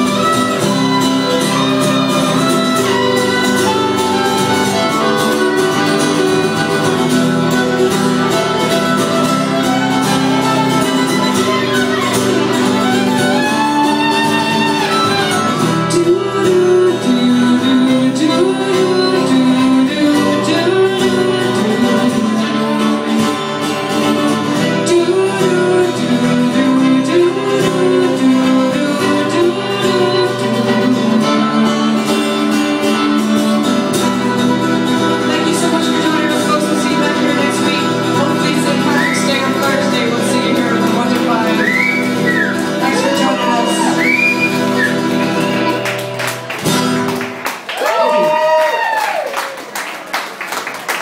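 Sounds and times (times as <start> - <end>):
fiddle playing: 0.0 - 47.3
strummed acoustic guitar: 0.0 - 47.7
woman singing: 15.9 - 22.8, 24.7 - 31.9.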